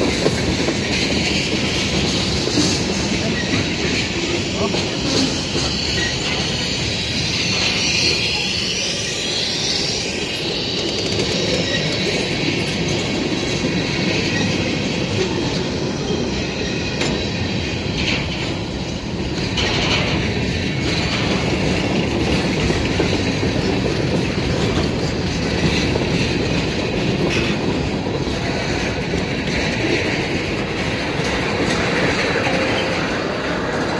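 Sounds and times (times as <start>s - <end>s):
freight train rolling past: 0.0s - 33.9s
high wavering wheel squeal: 5.2s - 13.1s.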